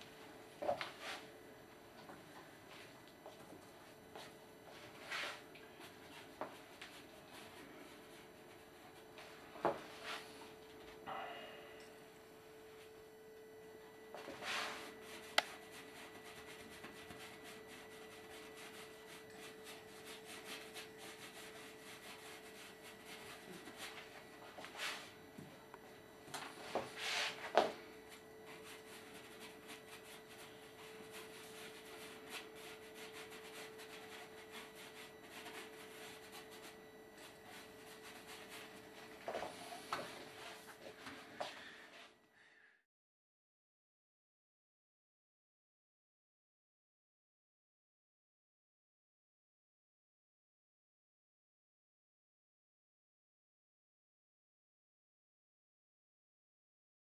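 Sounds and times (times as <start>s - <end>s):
steady faint hum: 0.0s - 42.8s
paintbrush scratching on canvas: 14.3s - 25.2s, 28.5s - 40.8s.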